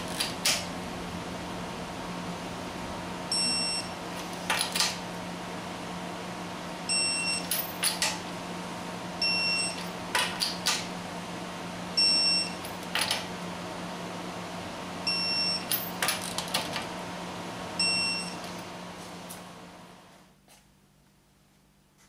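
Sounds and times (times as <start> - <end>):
torque wrench high beeps: 3.3 - 3.9, 6.9 - 7.5, 9.2 - 9.8, 12.0 - 12.6, 15.1 - 15.7, 17.8 - 18.4.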